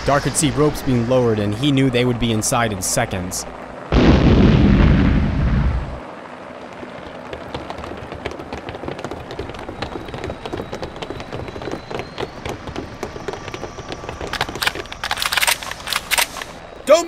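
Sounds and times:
rapid running footsteps: 6.0s - 16.0s
rattling gear: 6.6s - 16.6s.

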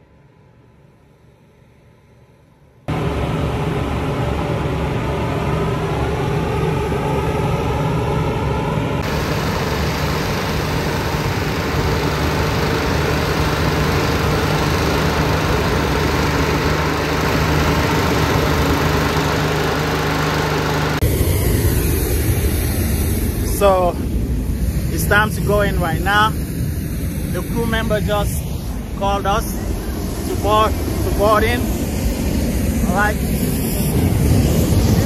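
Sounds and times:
fan engine humming: 2.9s - 35.0s
gas burner blasting: 9.0s - 23.9s.

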